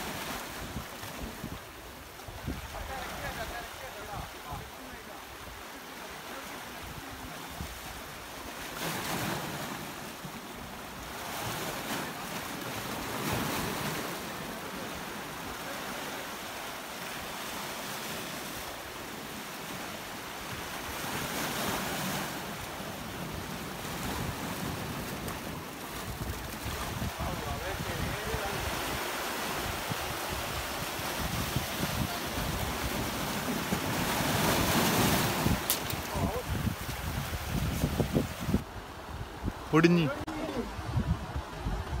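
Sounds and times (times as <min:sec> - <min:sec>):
wind on microphone: 0:00.0 - 0:03.4, 0:23.4 - 0:42.0
waves washing over rocks: 0:00.0 - 0:42.0.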